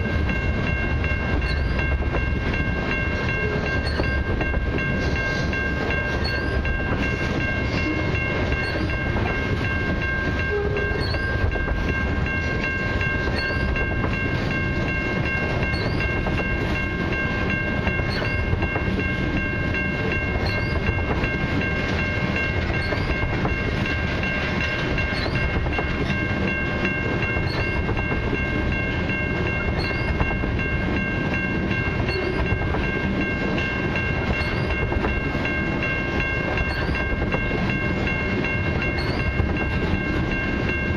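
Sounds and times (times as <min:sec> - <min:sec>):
high-pitched ringing tone: 0:00.0 - 0:24.0
train wheels rumbling on rail: 0:00.0 - 0:40.9.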